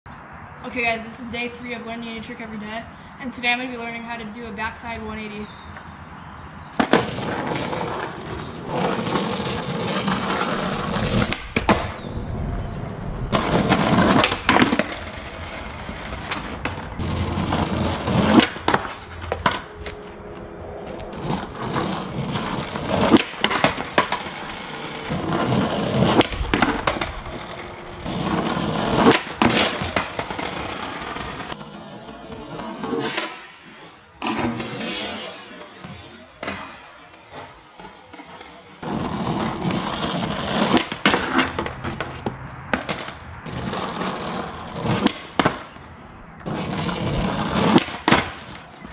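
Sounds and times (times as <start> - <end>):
skateboard wheels rolling on asphalt: 0.1 - 48.9
skateboard tail popping: 6.7 - 33.6, 34.2 - 45.8, 46.4 - 48.9
skateboard slapping down: 6.8 - 12.0, 13.3 - 20.1, 21.0 - 31.6, 34.2 - 45.8, 46.4 - 48.9.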